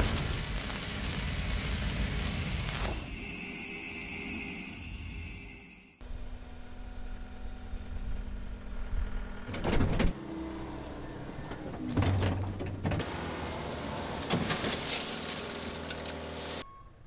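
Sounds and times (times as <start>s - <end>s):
hydraulic whine: 2.8s - 11.7s
diesel engine humming: 6.0s - 16.6s.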